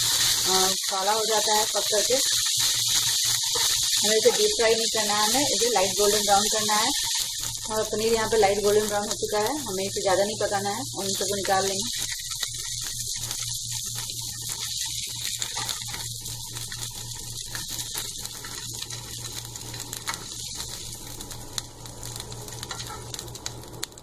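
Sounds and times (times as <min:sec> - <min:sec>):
cheese cubes sizzling in oil: 0:00.0 - 0:24.0
steady low hum: 0:03.5 - 0:14.7.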